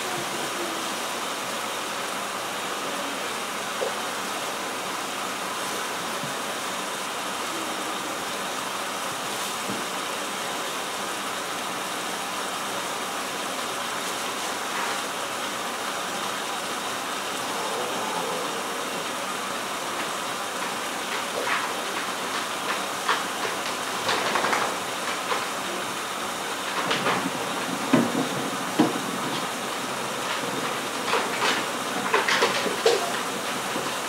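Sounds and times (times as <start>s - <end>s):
knocks and clatters in sink: 20.6s - 25.7s, 26.7s - 29.5s, 30.2s - 34.0s.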